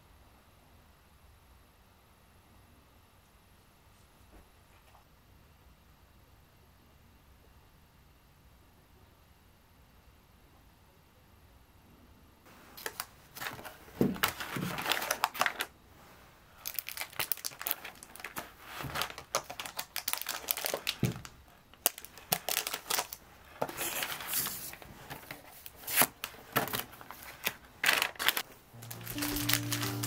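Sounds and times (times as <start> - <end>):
crinkling and rustling: 12.5 - 15.7, 16.6 - 30.0.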